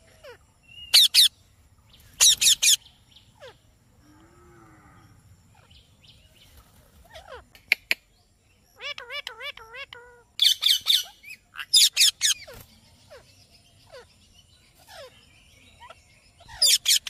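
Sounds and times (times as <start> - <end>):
parakeets shrill calls: 0.0 - 1.3, 2.0 - 3.6, 7.0 - 7.4, 8.7 - 14.2, 14.8 - 15.2, 15.8 - 17.0.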